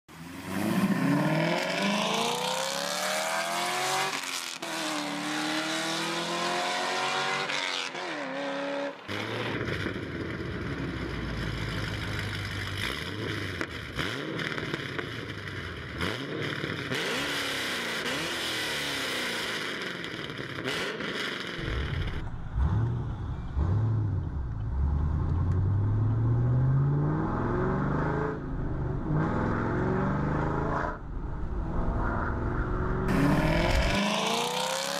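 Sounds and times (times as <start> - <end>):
car exhaust revving: 9.1 - 34.9.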